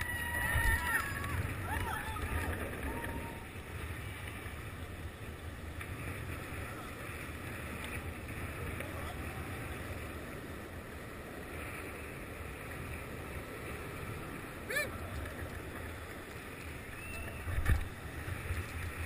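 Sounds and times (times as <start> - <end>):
longboard wheels rolling on asphalt: 0.0 - 19.0.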